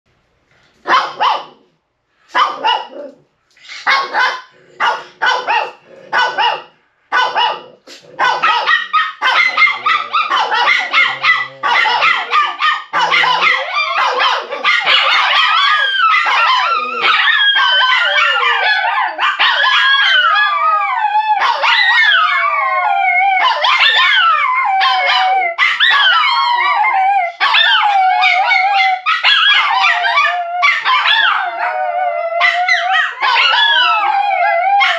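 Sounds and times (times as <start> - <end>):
puppies barking: 0.9 - 1.6, 2.3 - 3.1, 3.9 - 34.9
puppies howling: 8.4 - 34.9.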